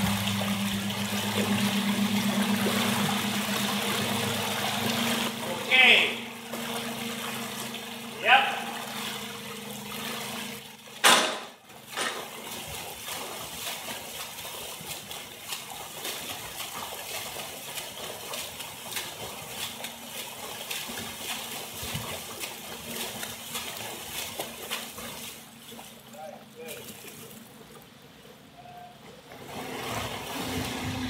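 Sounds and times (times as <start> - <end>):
loud splash: 0.0 - 17.4
rushing water current: 0.0 - 26.1
swimmer splashing arm strokes: 0.0 - 27.8.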